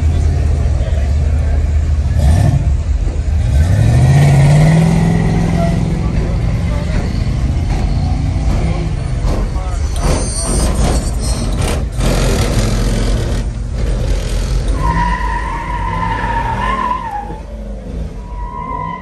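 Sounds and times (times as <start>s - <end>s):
car engine running hard: 0.0s - 18.3s
tyres squealing: 4.8s - 19.0s.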